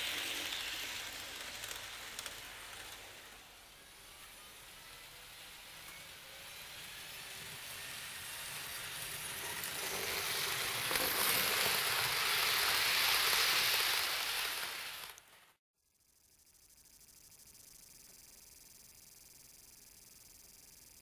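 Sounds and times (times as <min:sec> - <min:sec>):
model train running on track: 0:00.0 - 0:15.6.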